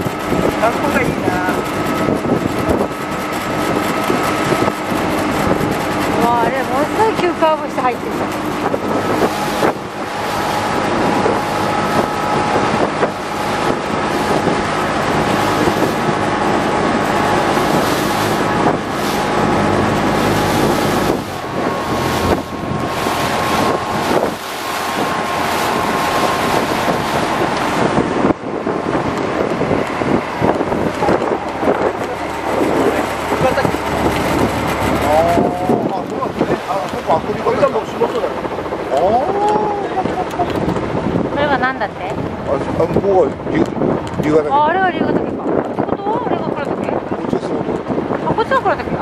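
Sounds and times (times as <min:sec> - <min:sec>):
boat engine running: 0:00.0 - 0:49.0
water along hull: 0:00.0 - 0:49.0
wind on microphone: 0:00.0 - 0:49.0.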